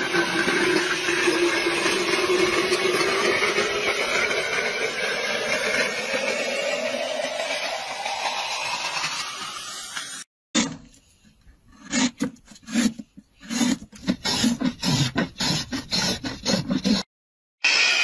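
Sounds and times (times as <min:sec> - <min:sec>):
machine hiss with rising whine: 0:04.0 - 0:10.3
blade scraping wood: 0:10.0 - 0:17.1.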